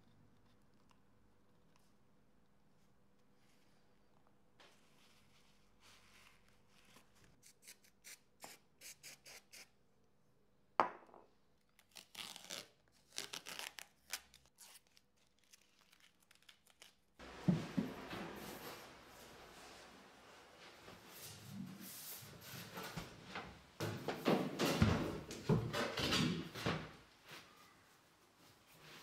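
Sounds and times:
tape rubbing and peeling: 0:05.0 - 0:09.7, 0:11.7 - 0:17.1.

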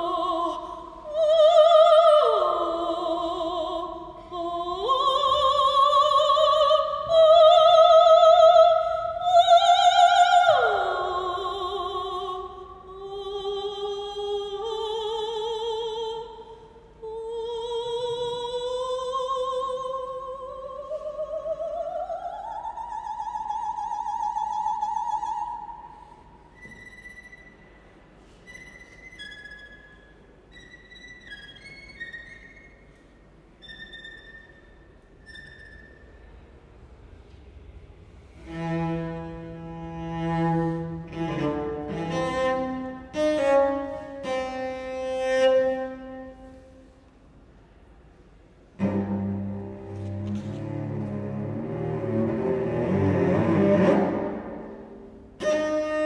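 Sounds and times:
operatic soprano singing: 0:00.0 - 0:26.0
string ensemble playing: 0:48.8 - 0:55.8.

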